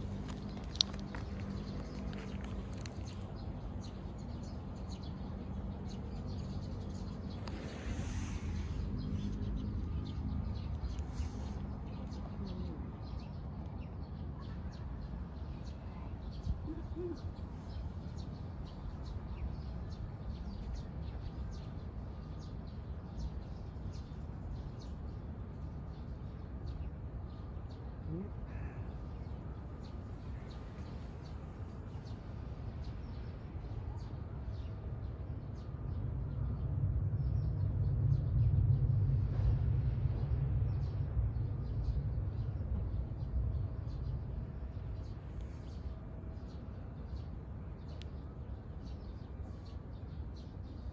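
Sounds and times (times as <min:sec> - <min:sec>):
small birds chirping: 0:00.0 - 0:39.0, 0:40.2 - 0:50.9
low rumble: 0:36.4 - 0:44.7.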